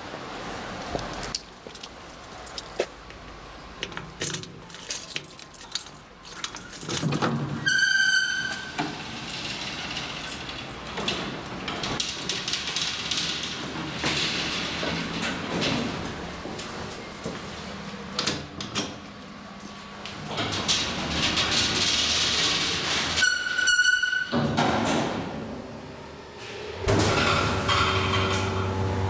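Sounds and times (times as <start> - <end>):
elevator clicks and rattles: 3.8 - 7.7, 8.3 - 23.6.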